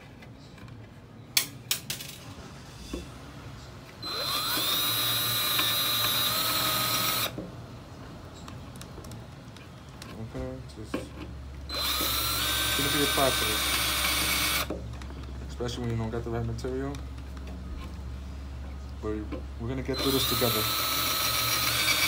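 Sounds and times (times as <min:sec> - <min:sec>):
cordless drill whining: 0:04.0 - 0:07.3, 0:11.7 - 0:14.7, 0:19.9 - 0:22.0.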